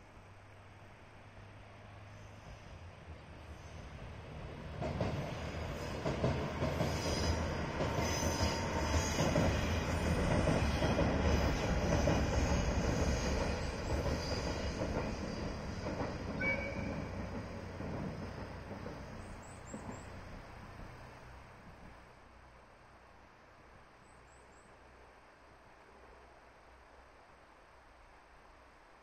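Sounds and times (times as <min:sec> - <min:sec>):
railcar rumbling over bridge: 0:00.8 - 0:22.1.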